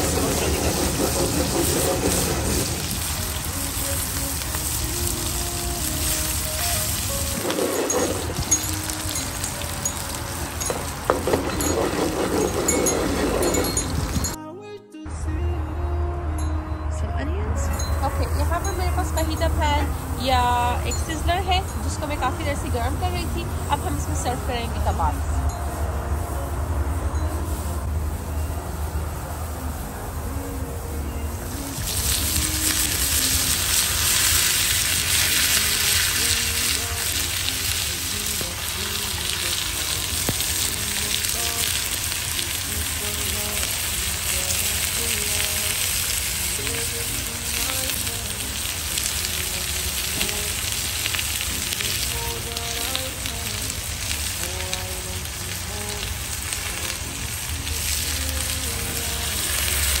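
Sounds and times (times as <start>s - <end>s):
meat sizzling on hot pan: 0.0s - 14.3s, 31.5s - 60.0s.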